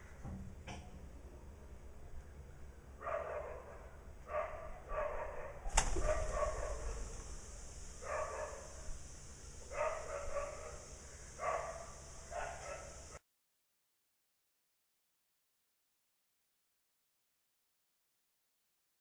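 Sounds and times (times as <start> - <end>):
dog barking: 3.0 - 7.1, 8.0 - 8.8, 9.7 - 13.2.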